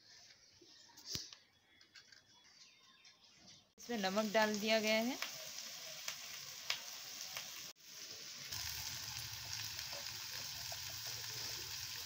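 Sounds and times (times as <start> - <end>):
faint crackles: 3.8 - 7.7
vegetables sizzling in a pan: 3.8 - 12.0.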